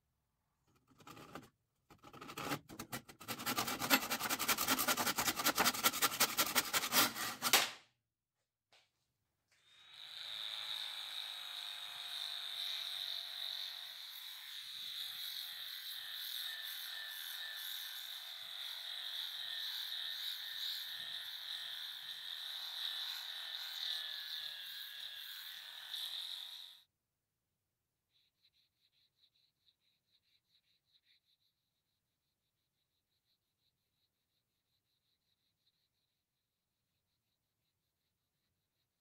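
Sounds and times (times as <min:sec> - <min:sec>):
sanding wood rasping: 0:02.2 - 0:07.6.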